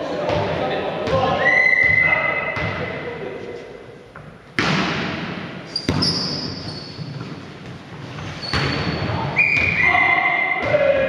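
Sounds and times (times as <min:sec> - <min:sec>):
volleyball hits echoing: 0:00.2 - 0:03.1, 0:04.2 - 0:07.8
shoes squeaking on court floor: 0:05.7 - 0:09.8.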